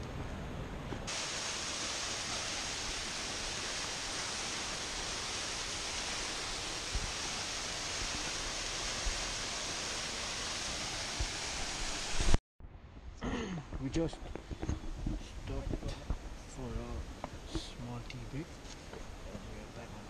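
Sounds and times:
waterfall rushing: 0:01.1 - 0:12.4
faint low bumps: 0:12.6 - 0:20.0.

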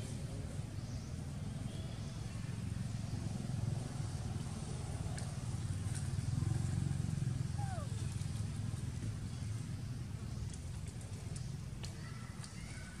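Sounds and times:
vehicle engine rumbling: 0:02.6 - 0:11.7.

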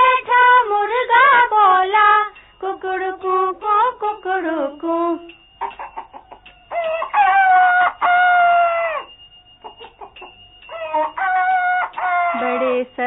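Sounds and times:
rooster crowing: 0:05.6 - 0:12.8.

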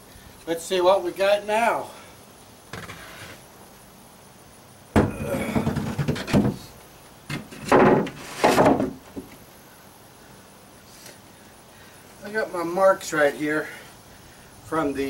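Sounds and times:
board scraping on hull: 0:02.7 - 0:03.4, 0:07.5 - 0:08.9.

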